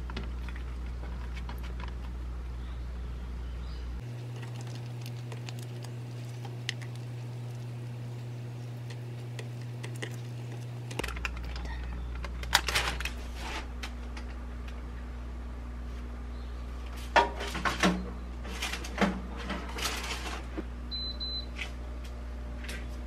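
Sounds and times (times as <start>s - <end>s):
steady low hum: 0.0s - 17.4s.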